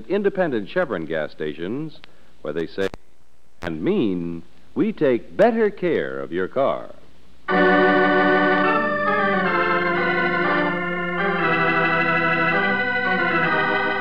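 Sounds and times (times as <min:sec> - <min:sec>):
organ sustained chords: 0:07.5 - 0:14.0.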